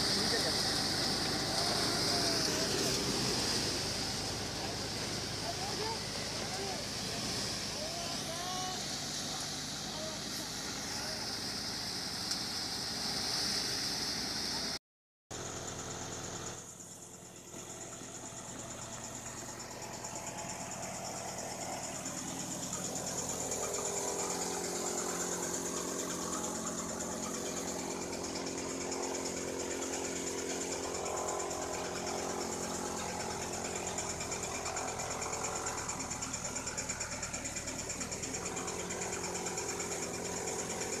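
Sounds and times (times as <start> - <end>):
straw thresher engine running: 0.0 - 41.0.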